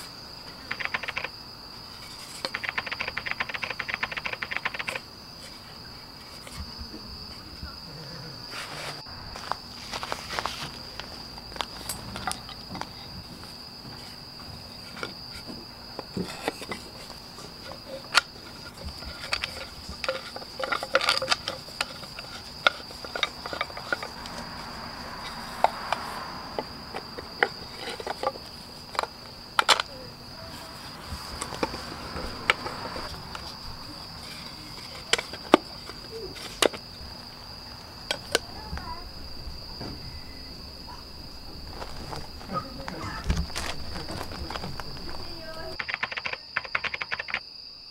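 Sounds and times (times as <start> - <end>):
crickets chirring: 0.0 - 47.9
wooden parts clicking and knocking: 0.4 - 1.3, 2.0 - 6.7, 10.4 - 24.5, 25.2 - 36.9, 38.1 - 38.6, 41.6 - 47.5.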